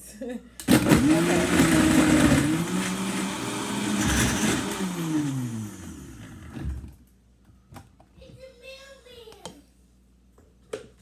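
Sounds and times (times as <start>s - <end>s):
blender motor running: 0.7s - 6.9s.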